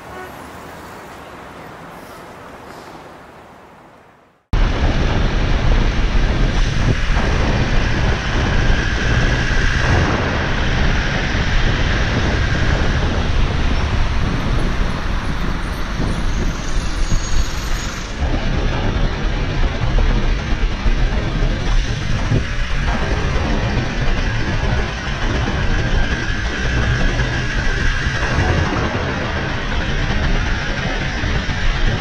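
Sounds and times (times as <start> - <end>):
road traffic passing close: 0.0 - 4.5
wind rush on microphone: 0.0 - 32.0.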